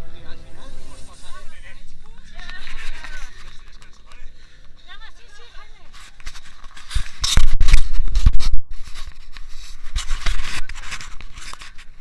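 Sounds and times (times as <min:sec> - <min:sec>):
microphone handling scraping: 0:00.9 - 0:12.0.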